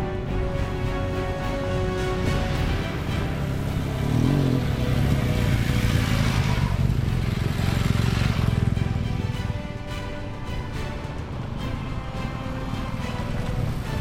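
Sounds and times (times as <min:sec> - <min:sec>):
motorcycles riding past on gravel: 0:02.3 - 0:09.3.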